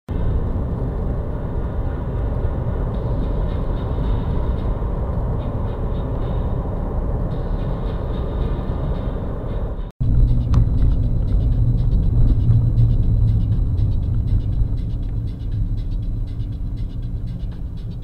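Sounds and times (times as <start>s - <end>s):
car interior road rumble: 0.1s - 18.0s.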